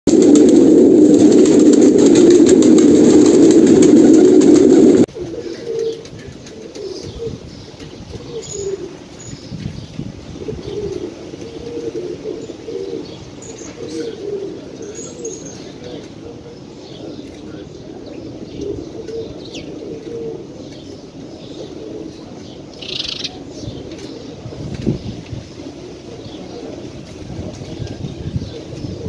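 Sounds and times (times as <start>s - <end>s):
pigeons cooing: 0.1s - 29.0s
pigeon chirps: 8.1s - 9.5s, 22.7s - 24.2s.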